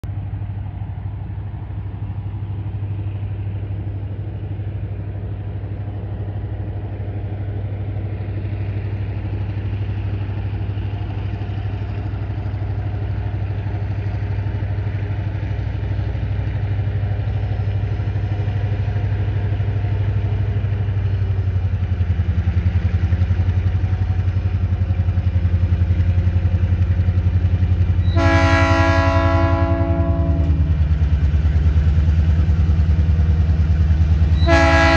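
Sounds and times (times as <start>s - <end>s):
diesel locomotive engine drone: 0.0s - 34.9s
locomotive horn chord: 28.0s - 30.7s, 34.4s - 34.9s.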